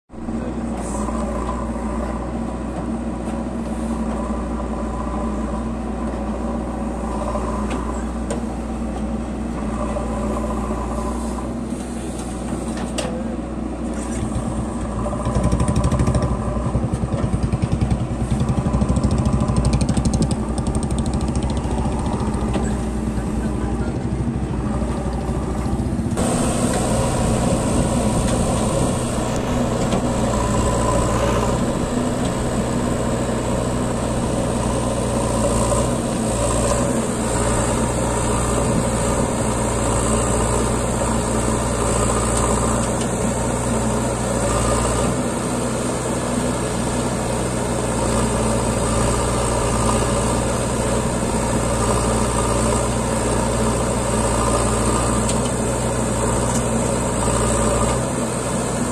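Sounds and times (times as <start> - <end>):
diesel engine running: 0.1 - 58.9.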